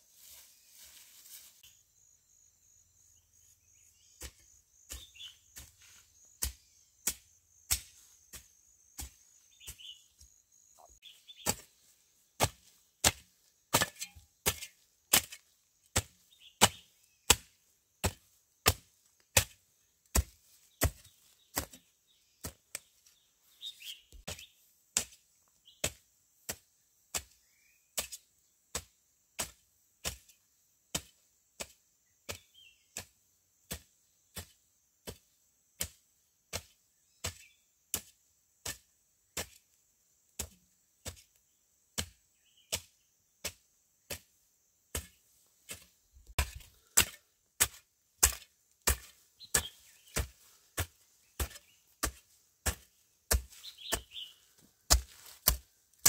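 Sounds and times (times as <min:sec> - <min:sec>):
insect drone: 0:01.4 - 0:04.9
bird chirps: 0:01.6 - 0:12.0, 0:16.2 - 0:17.5, 0:20.6 - 0:24.7, 0:49.4 - 0:52.0, 0:53.5 - 0:55.2.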